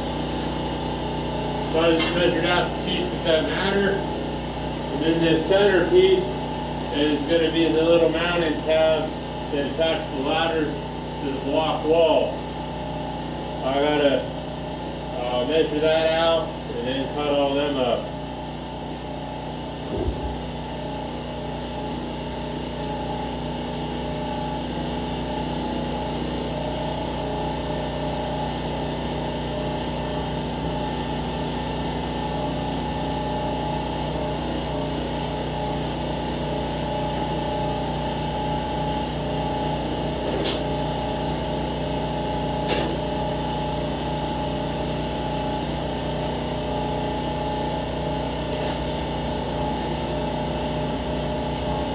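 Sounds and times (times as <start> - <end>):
steady machine hum: 0.0 - 51.9.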